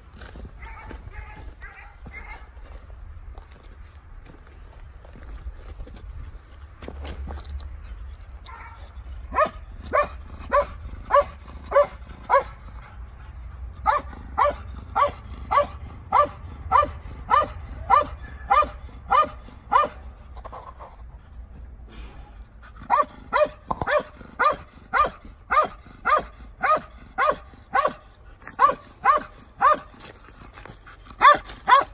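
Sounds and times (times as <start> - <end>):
dog barking: 0.6 - 2.5, 8.5 - 12.6, 13.8 - 20.0, 22.9 - 28.0, 28.6 - 29.9, 31.2 - 31.9.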